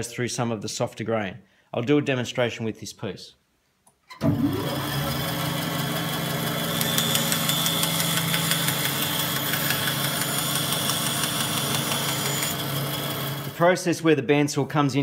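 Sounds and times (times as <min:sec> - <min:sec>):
bandsaw motor hum: 0:04.2 - 0:13.6
saw blade cutting wood: 0:05.7 - 0:13.6.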